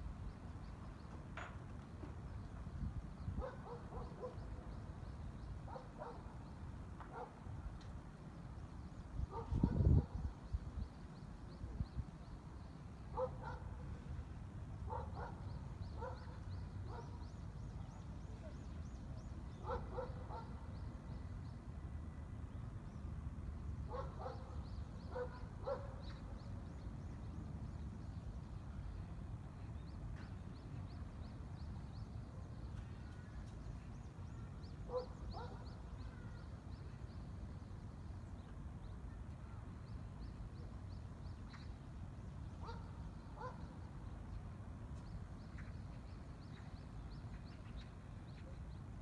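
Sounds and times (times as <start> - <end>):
dog barking: 3.4 - 4.4, 5.7 - 6.2, 7.1 - 7.3, 13.2 - 13.7, 14.9 - 15.4, 16.0 - 17.2, 19.6 - 20.5, 23.9 - 24.4, 25.1 - 25.9, 34.9 - 35.6, 42.6 - 43.6.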